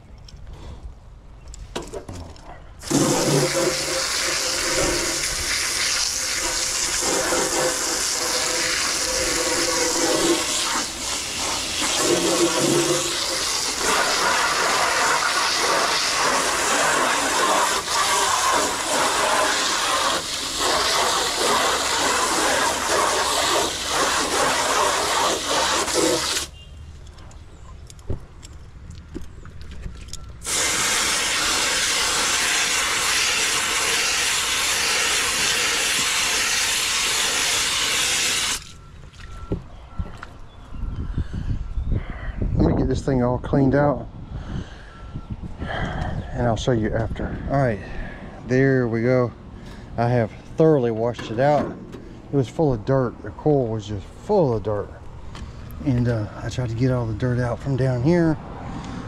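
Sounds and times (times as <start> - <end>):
hose spray hissing: 2.8 - 26.5, 30.4 - 38.7.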